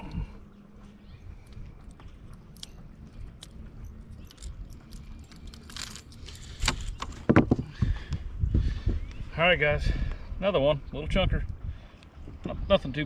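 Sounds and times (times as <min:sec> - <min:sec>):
steady low rumble: 0:00.0 - 0:13.0
fish handling clicks and rustles: 0:01.3 - 0:08.0.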